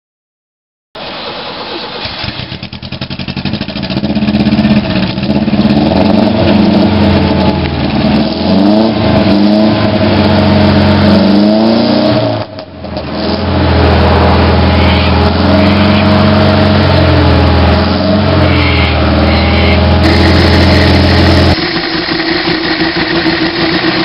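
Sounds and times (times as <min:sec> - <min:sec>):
car engine revving: 0:01.8 - 0:24.0.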